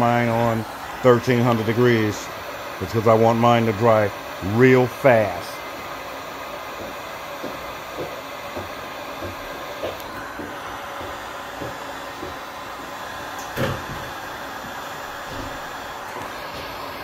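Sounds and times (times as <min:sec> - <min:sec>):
heat gun fan hissing: 0:00.0 - 0:17.0
loud thump: 0:13.6 - 0:14.1.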